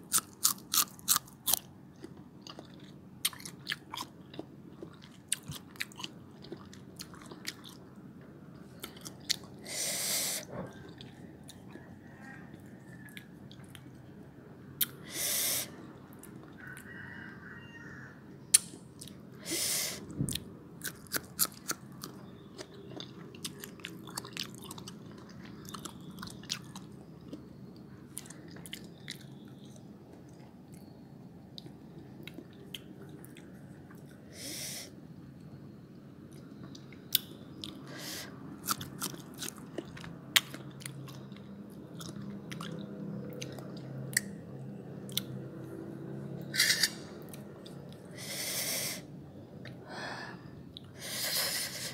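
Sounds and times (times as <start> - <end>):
crunching and chewing: 0.0 - 8.0, 8.6 - 9.8, 10.4 - 14.2, 18.5 - 19.2, 20.2 - 34.2, 38.6 - 44.4, 45.0 - 45.5
short hissing: 9.6 - 10.4, 15.0 - 15.8.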